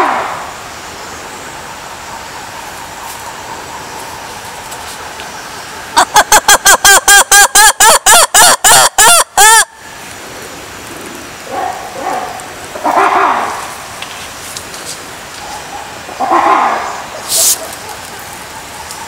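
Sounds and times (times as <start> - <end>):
lemur calling: 15.4 - 19.0.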